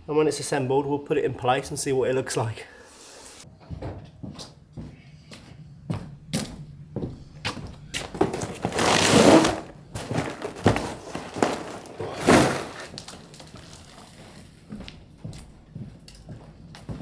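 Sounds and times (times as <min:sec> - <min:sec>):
cardboard rustling and scraping: 0:08.0 - 0:14.4.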